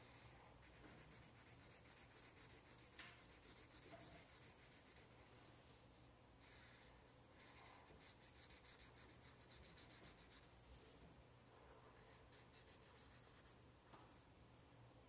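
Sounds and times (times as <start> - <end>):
marker scratching on paper: 0.0 - 5.0, 7.4 - 10.5, 12.0 - 13.5.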